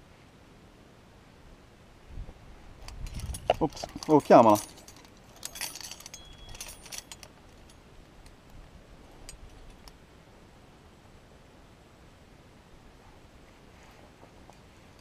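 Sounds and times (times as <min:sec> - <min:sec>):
faint steady background noise: 0:00.0 - 0:15.0
climbing gear clinking: 0:02.8 - 0:08.4.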